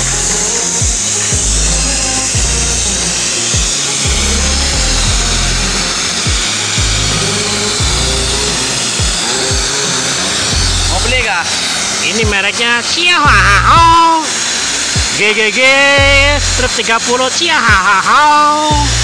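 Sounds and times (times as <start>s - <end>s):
music with heavy bass: 0.0s - 11.6s, 13.3s - 14.0s, 14.8s - 15.2s, 16.0s - 16.8s, 18.7s - 19.0s
cutting torch flame hissing: 0.0s - 19.0s.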